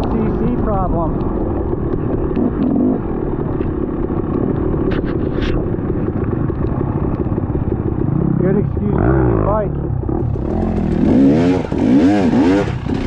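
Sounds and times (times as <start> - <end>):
motorcycle engine rumble: 0.0 - 13.0
wind noise: 0.0 - 13.0
short scraping sounds: 4.9 - 5.6.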